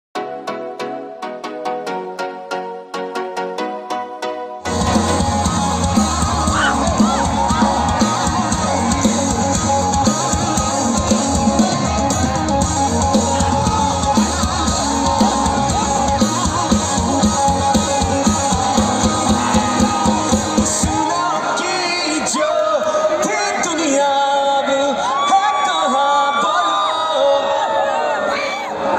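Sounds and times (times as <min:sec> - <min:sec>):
steady drum beat: 0:04.7 - 0:21.2
electric guitars: 0:04.7 - 0:21.6.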